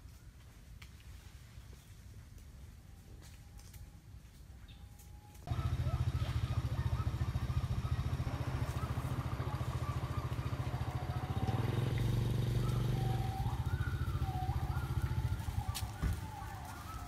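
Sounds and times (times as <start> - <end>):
small engine idling: 5.4 - 17.0.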